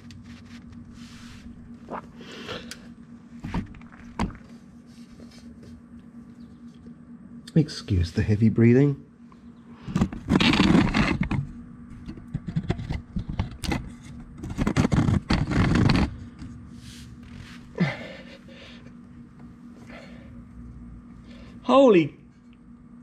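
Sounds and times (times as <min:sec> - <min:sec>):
man breathing heavily: 0:17.4 - 0:19.0, 0:19.8 - 0:20.5.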